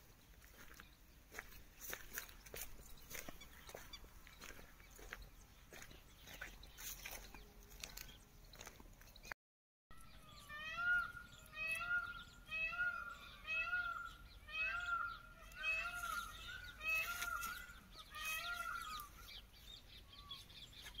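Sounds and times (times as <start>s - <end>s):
peacock calling: 10.0s - 20.7s.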